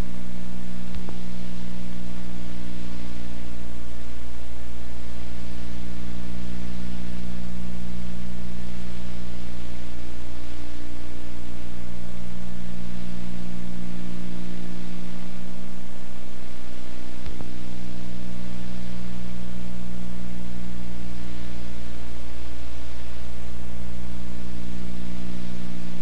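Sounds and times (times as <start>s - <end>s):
electrical hum and hiss: 0.0s - 26.0s.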